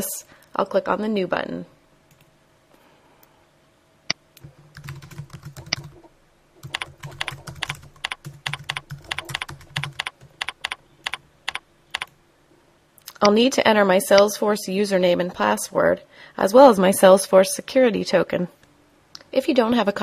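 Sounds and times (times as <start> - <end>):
typing on computer keyboard: 4.4 - 12.1.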